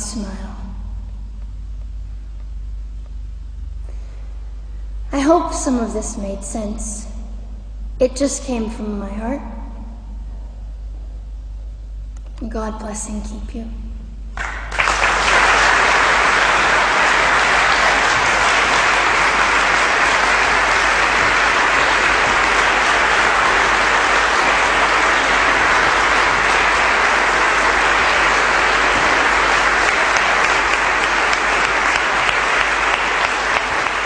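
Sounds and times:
audience applauding: 14.4s - 34.0s.

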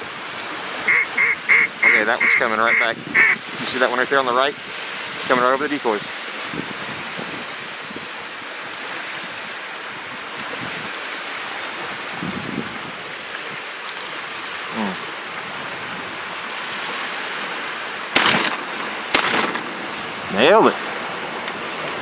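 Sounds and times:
small waves lapping: 0.0s - 22.0s
wind: 0.0s - 22.0s
shotgun shots: 18.1s - 19.9s.

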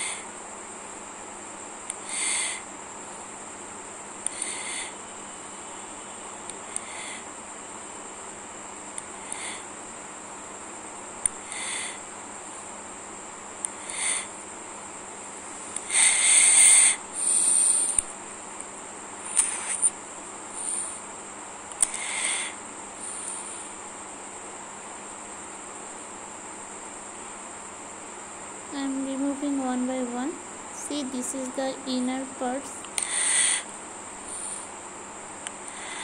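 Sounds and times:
steady high-pitched whine: 0.0s - 36.0s.

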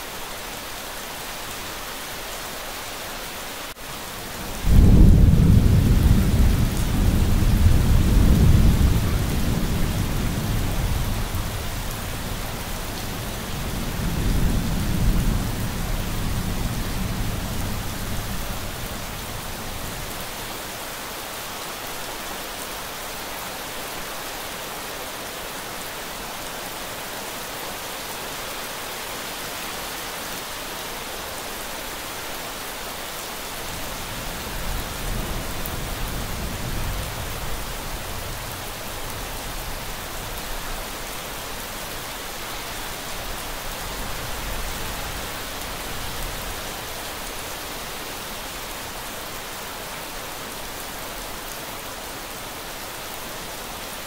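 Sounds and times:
steady rain: 0.0s - 54.0s
thunder rumbling: 4.4s - 19.1s.

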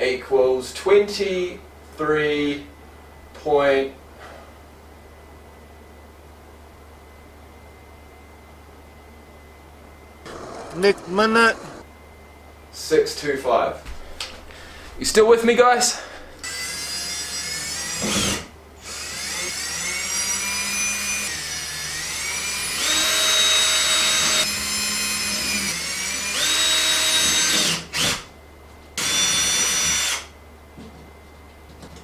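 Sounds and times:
cordless drill whining: 16.4s - 28.3s, 29.0s - 30.3s.

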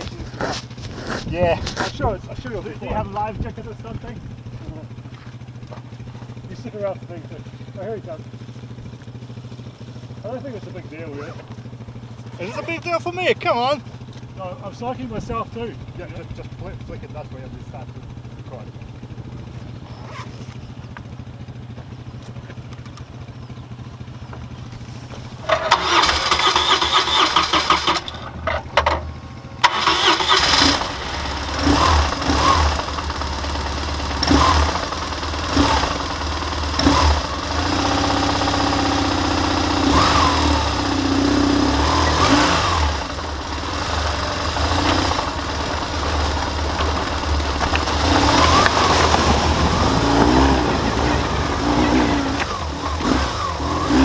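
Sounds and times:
motorcycle engine idling and revving: 0.0s - 54.0s
motorcycle pulling away: 0.0s - 54.0s
motorcycle engine cranking: 22.2s - 54.0s.

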